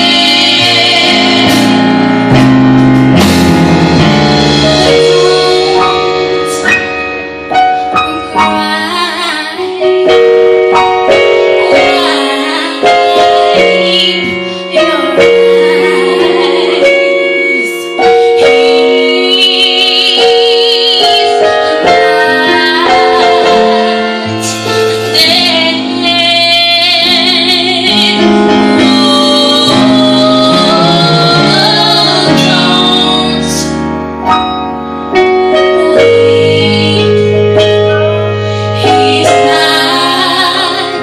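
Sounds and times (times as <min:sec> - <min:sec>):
gospel group singing in harmony: 0:00.0 - 0:07.0, 0:10.8 - 0:33.9, 0:35.6 - 0:41.0
low bass line: 0:00.0 - 0:07.6
electronic keyboard chords: 0:00.0 - 0:41.0.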